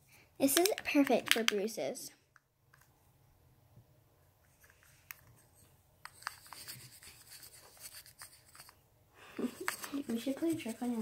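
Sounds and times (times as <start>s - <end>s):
makeup brush scratching in compact: 6.1s - 8.8s, 9.5s - 11.0s.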